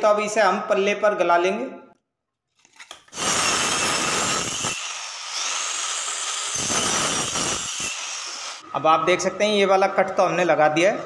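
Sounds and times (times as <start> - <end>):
electric cutter cutting wood: 3.1 - 8.6.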